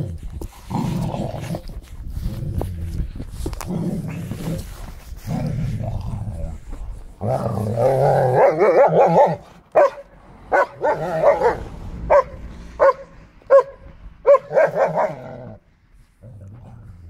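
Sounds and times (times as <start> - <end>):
dog barking: 8.3 - 15.4.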